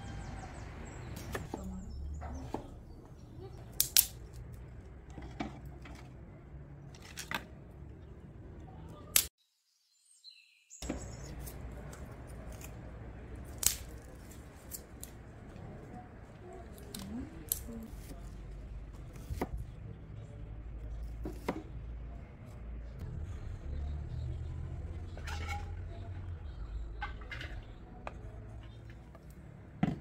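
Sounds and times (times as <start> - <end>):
dry sticks snapping: 3.6 - 4.6, 11.3 - 15.2, 16.8 - 17.7.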